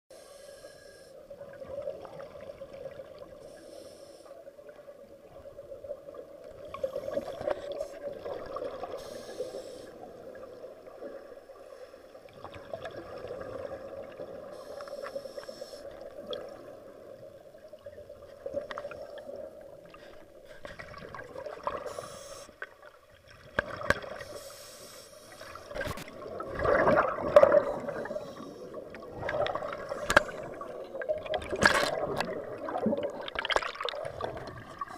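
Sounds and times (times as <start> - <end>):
diver breathing underwater: 0.1 - 1.2, 3.4 - 4.4, 8.9 - 10.2, 14.4 - 16.0, 21.7 - 22.6, 24.2 - 25.7, 27.0 - 30.8
bubbles gurgling: 5.2 - 9.0, 12.2 - 14.5, 25.6 - 34.9.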